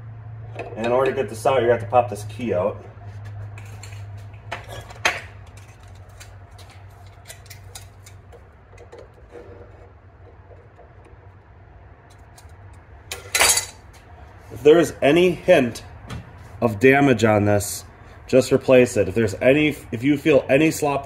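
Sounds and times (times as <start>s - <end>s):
metal clatter: 12.1s - 13.8s.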